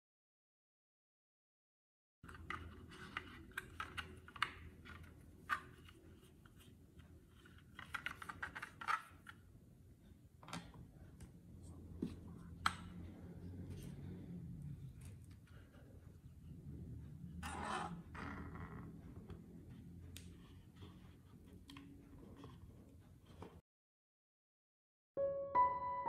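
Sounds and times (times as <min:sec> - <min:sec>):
paintbrush tapping and scraping plastic: 0:02.3 - 0:09.5.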